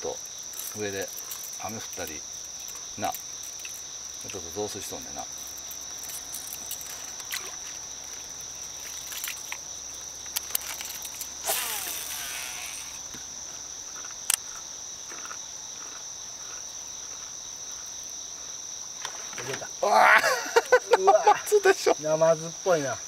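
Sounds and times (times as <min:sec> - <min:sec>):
high-pitched insect chorus: 0:00.0 - 0:23.0.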